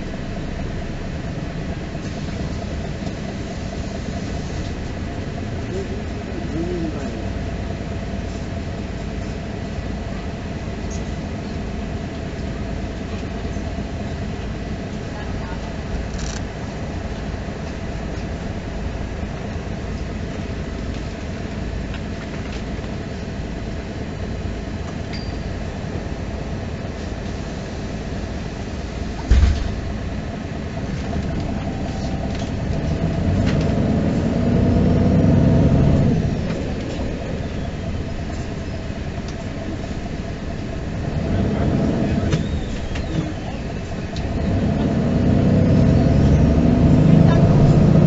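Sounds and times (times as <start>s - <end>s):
bus engine and road noise: 0.0s - 48.0s
sharp thump: 29.2s - 29.8s.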